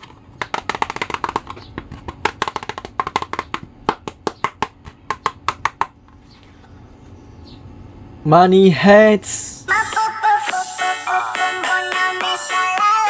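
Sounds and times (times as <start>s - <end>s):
wood block clicks and taps: 0.4s - 5.9s.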